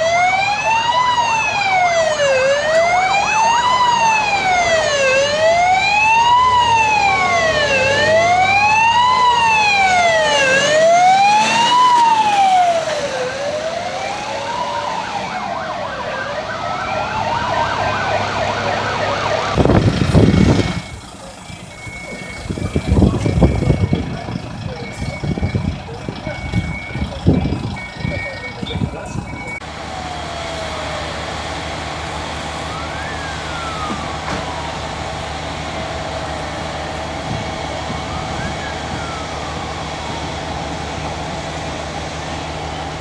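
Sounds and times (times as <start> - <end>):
fire engine siren wailing: 0.0 - 43.0
loud rumble: 16.6 - 43.0.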